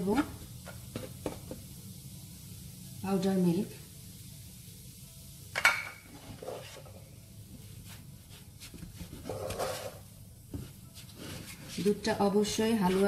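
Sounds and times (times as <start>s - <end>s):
spatula scraping frying pan: 9.1s - 10.1s, 12.8s - 13.0s.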